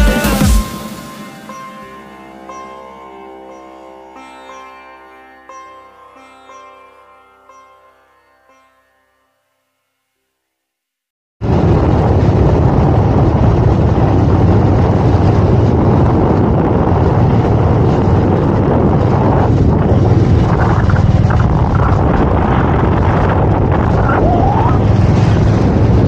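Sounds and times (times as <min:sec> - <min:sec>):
wind rushing on microphone: 0:11.4 - 0:26.0.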